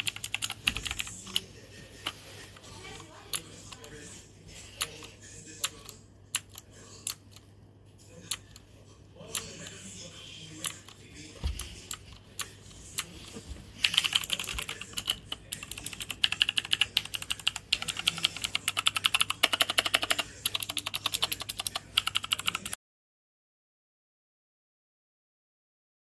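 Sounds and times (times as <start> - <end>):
mechanical keyboard typing: 0.0 - 1.4, 4.8 - 7.5, 13.8 - 22.8.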